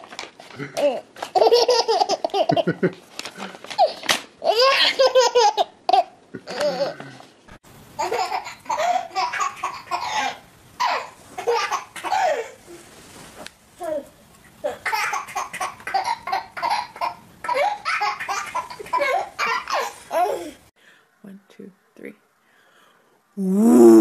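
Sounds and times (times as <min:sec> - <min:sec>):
baby laughing: 0:00.6 - 0:02.9, 0:03.7 - 0:07.0, 0:08.0 - 0:12.6, 0:14.7 - 0:20.6.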